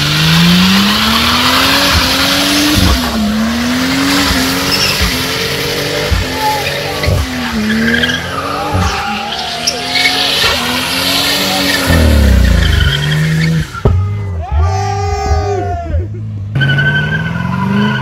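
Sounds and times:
engine revving: 0.0s - 13.8s
tyres squealing: 0.7s - 15.6s.

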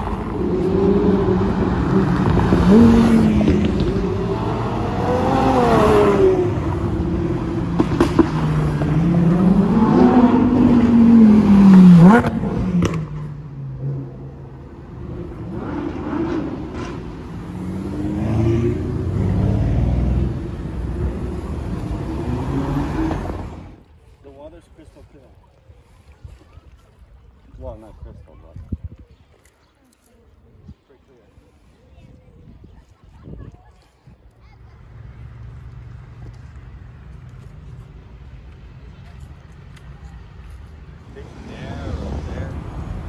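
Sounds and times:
cars accelerating away: 0.0s - 23.8s, 41.1s - 43.0s
sports car engine revving: 0.0s - 23.8s
city traffic: 0.0s - 25.0s, 33.2s - 43.0s.

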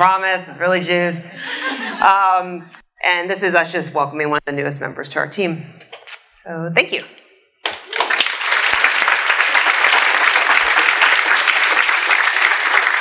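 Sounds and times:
audience applauding: 7.6s - 13.0s.

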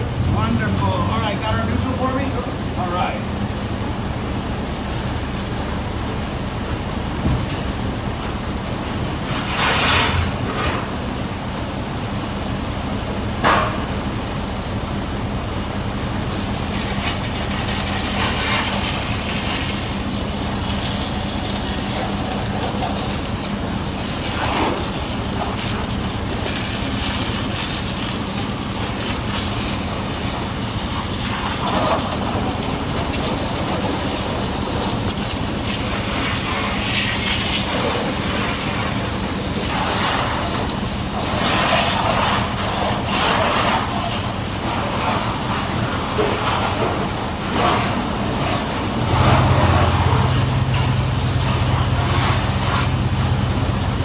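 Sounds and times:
rushing hissing water spray: 16.3s - 54.0s.

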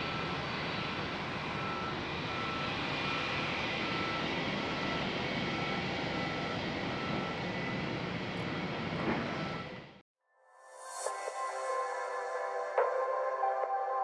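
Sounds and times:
jet engines running: 0.0s - 10.0s.

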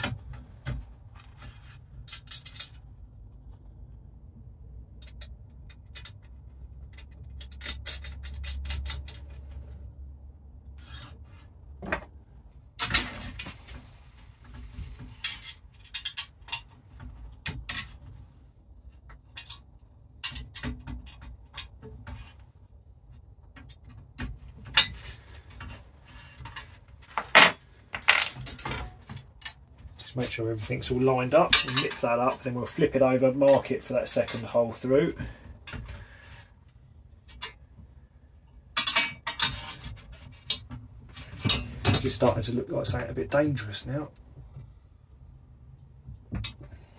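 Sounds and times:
metallic clinks and scrapes: 26.4s - 29.6s.

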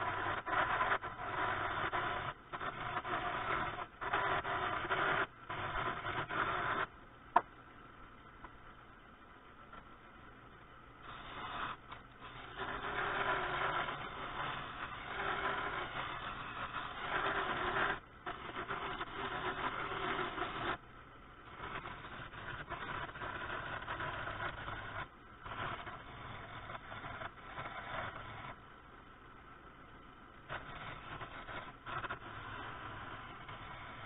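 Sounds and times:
turning tool shaving wood: 0.0s - 6.8s, 11.1s - 20.8s, 21.5s - 28.5s.

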